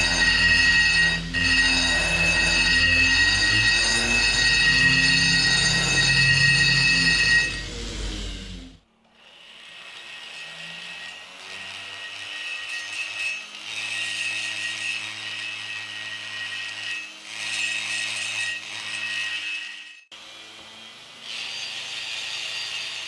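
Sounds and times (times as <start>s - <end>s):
rotary grinder high whine: 0.0s - 23.0s.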